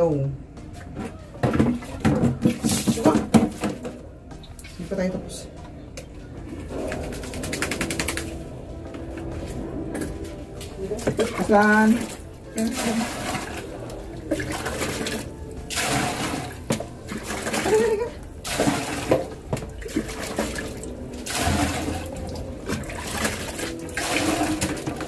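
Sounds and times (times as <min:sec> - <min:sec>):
water pouring and splashing: 0:01.4 - 0:04.9, 0:10.5 - 0:25.0.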